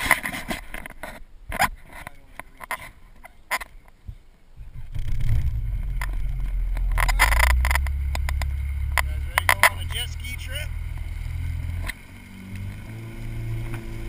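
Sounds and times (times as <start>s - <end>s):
jet ski engine humming: 4.8s - 14.0s.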